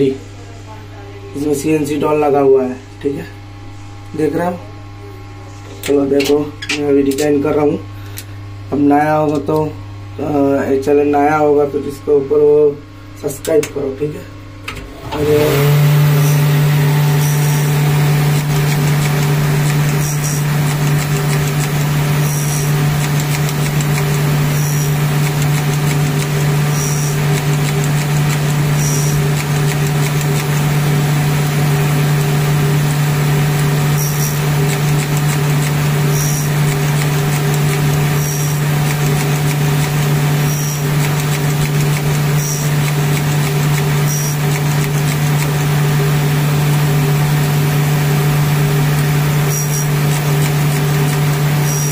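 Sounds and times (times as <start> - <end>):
machine motor hum: 14.5 - 51.9.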